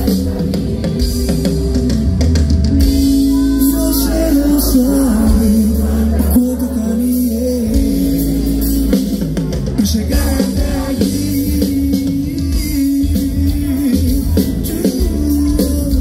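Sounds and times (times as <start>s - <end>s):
drums: 0.0s - 16.0s
heavy bass: 0.0s - 16.0s
live band music: 0.0s - 16.0s
man singing into a microphone: 3.4s - 16.0s.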